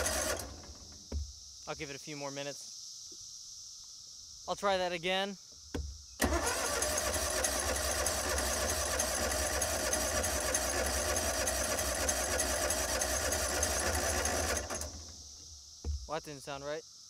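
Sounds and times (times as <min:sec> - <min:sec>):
engine cranking by starter: 0:00.0 - 0:01.1, 0:06.2 - 0:15.3.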